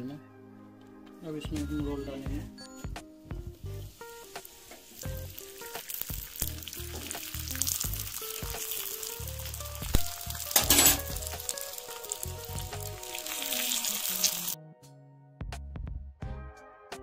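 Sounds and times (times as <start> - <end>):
flatbread sizzling in oil: 3.7 - 14.6.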